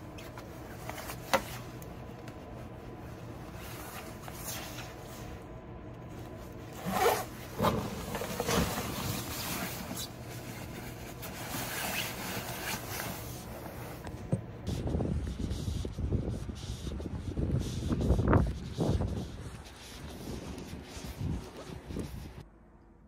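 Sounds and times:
jacket fabric rustling: 0:00.0 - 0:14.4, 0:17.8 - 0:22.4
jacket zipper rasping: 0:06.7 - 0:10.2, 0:11.2 - 0:13.4.

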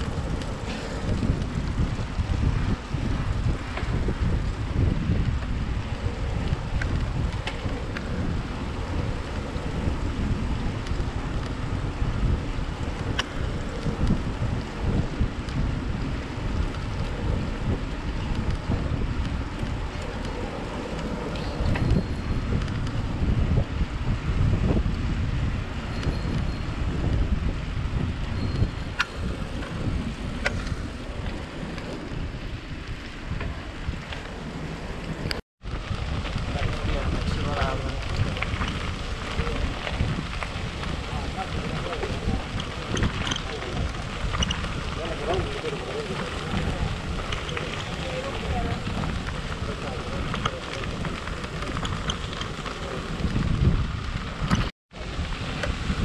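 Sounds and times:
wind buffeting microphone: 0:00.0 - 0:56.0.

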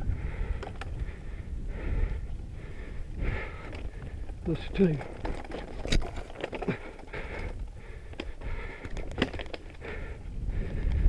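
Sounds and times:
bike tyres on dirt: 0:00.0 - 0:11.0
wind rumble on microphone: 0:00.0 - 0:11.0
bike knocks and rattles: 0:00.3 - 0:01.2, 0:03.3 - 0:11.0.

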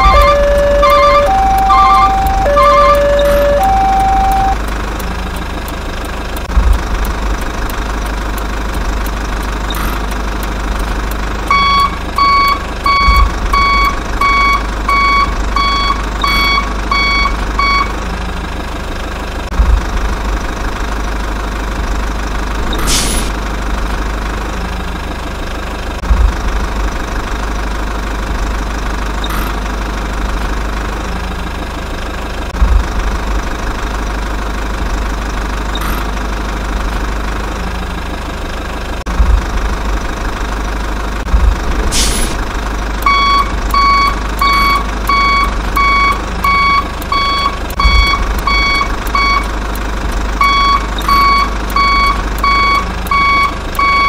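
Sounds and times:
reversing alarm beeping: 0:00.0 - 0:04.6, 0:11.5 - 0:18.0, 0:43.0 - 0:49.5, 0:50.4 - 0:54.0
two-tone electronic signal: 0:00.0 - 0:04.6
truck engine rumbling: 0:00.0 - 0:54.0.

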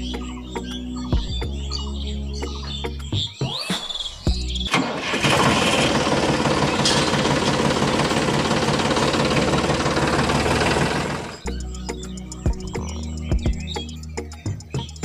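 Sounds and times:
music: 0:00.0 - 0:05.0, 0:11.4 - 0:15.0
small motor rattling: 0:04.7 - 0:11.5.

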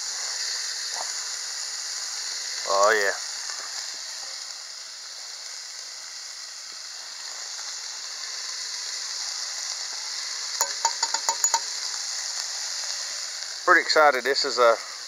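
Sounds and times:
bacon sizzling: 0:00.0 - 0:15.0
sharp ticks: 0:10.6 - 0:11.7.

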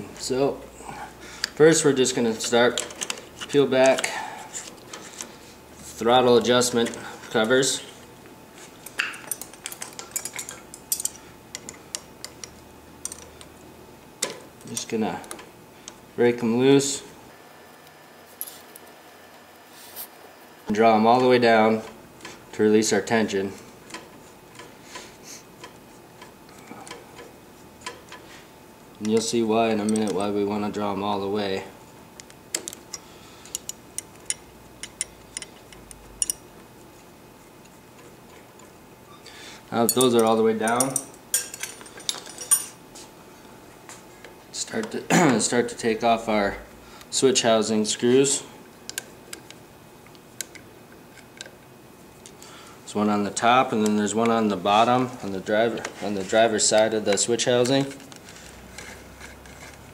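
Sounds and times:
throttle cable adjusters clicking: 0:02.3 - 0:05.3, 0:29.0 - 0:30.4
light metal clicks and clinks: 0:08.9 - 0:13.4, 0:32.7 - 0:36.4, 0:39.8 - 0:42.8.

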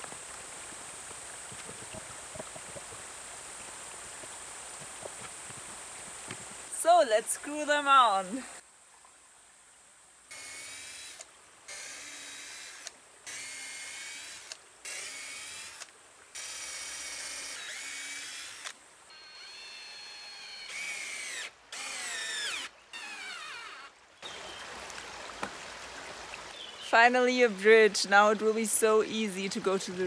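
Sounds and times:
cordless drill driving screws: 0:10.3 - 0:23.9.

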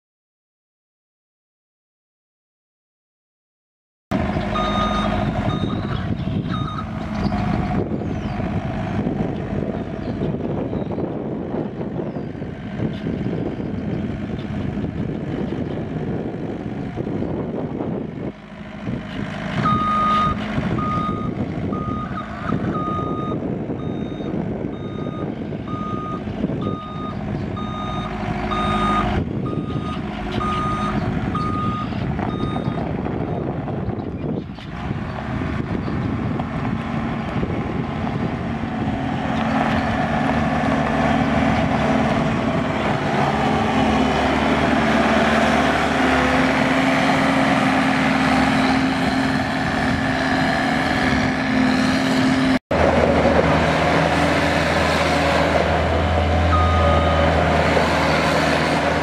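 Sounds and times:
diesel engine running: 0:04.1 - 0:59.0
backup alarm beeping: 0:04.6 - 0:06.9, 0:19.7 - 0:32.8.

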